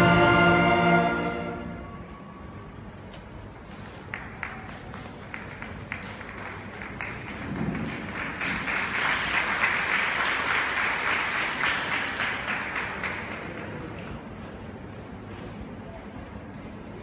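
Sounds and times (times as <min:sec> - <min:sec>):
audience applause: 0:03.9 - 0:14.4.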